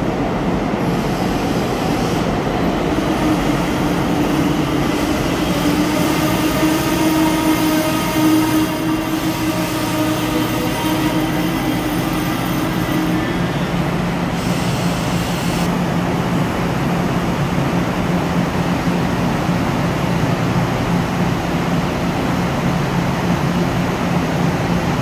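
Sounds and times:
standing train low hum: 0.0 - 25.0
train brake squeal: 6.7 - 13.8.

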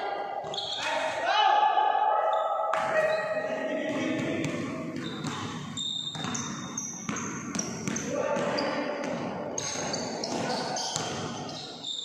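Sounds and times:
players' voices: 0.0 - 5.6, 7.2 - 11.7
basketball bouncing on wooden floor: 3.9 - 11.6.

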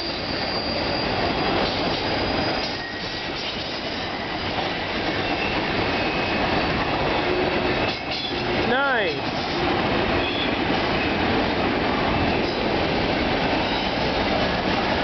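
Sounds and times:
wheel squeals: 0.0 - 6.5
train wheels rumbling on rails: 0.0 - 15.0.

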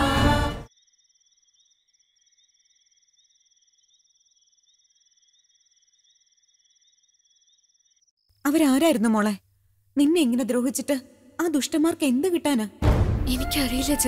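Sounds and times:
background music: 0.0 - 0.7, 12.7 - 14.0
crickets trilling: 0.7 - 8.8.

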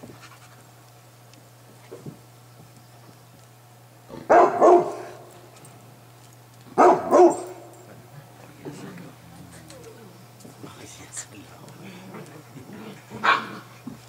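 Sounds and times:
dog barking: 4.2 - 5.3, 6.8 - 7.8, 13.2 - 13.7.

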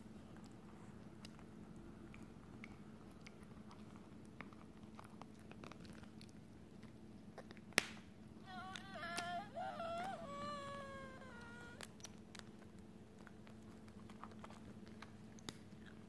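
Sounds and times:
dog chewing on cloth toy: 0.3 - 7.8, 11.8 - 16.0.

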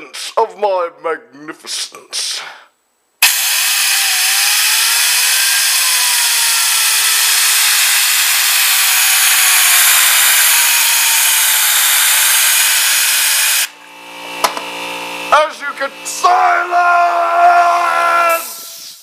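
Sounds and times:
compressed air hissing: 3.2 - 13.7, 16.8 - 19.0
spinning wheel whine: 3.2 - 18.4.

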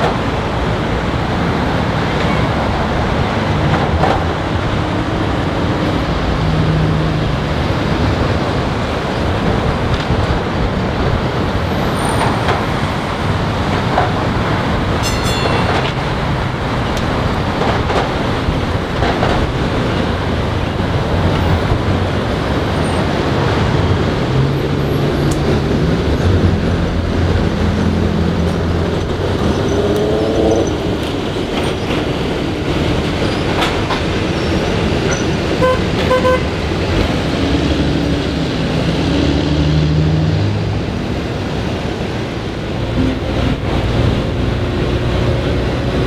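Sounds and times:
streetcar wheels rumbling on rails: 0.0 - 46.0.

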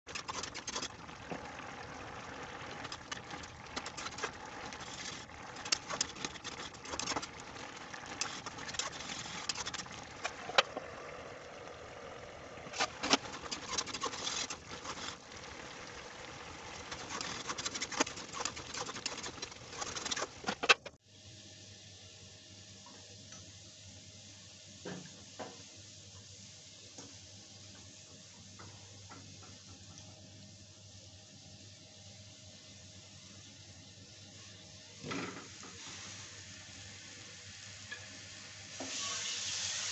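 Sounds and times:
curry bubbling in pan: 0.1 - 20.8
oil heating with faint ticks: 0.1 - 21.0, 22.8 - 23.6, 26.9 - 30.8, 36.7 - 39.7
metal ladle scraping pan: 2.8 - 10.8, 12.7 - 15.6, 16.6 - 20.8, 38.8 - 39.9.

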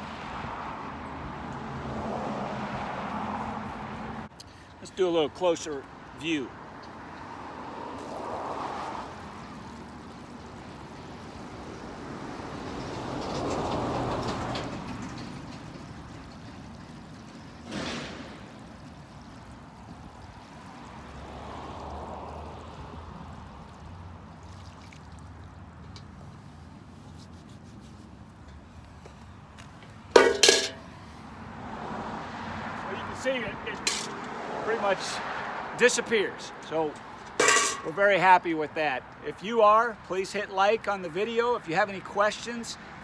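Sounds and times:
passing road traffic: 0.0 - 43.0
water pouring and splashing on concrete: 7.9 - 12.6, 15.2 - 27.7
sharp metal clink: 30.2 - 30.9, 33.9 - 34.2, 37.4 - 37.9.

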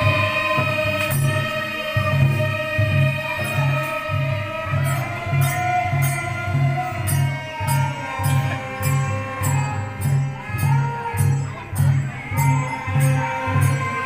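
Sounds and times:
jingling cymbal strokes: 0.0 - 14.0.

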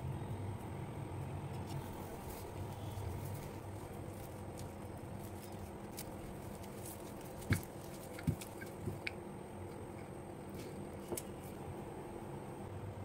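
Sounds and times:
steady low hum: 0.0 - 13.0
rolling pin knocks and crinkles: 1.6 - 9.2.

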